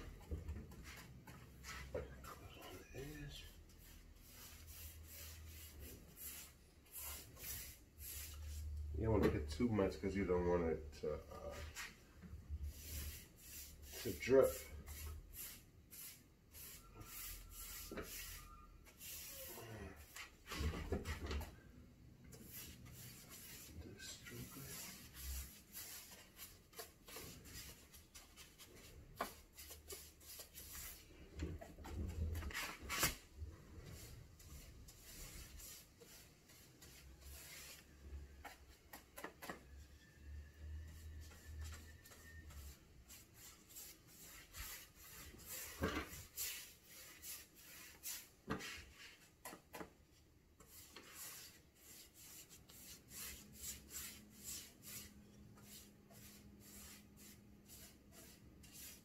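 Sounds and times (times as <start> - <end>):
paintbrush brushing on wood: 0.8 - 2.4, 3.0 - 8.7, 11.4 - 12.0, 12.7 - 20.5, 22.3 - 31.1, 33.9 - 39.0, 40.9 - 49.3, 50.6 - 59.0.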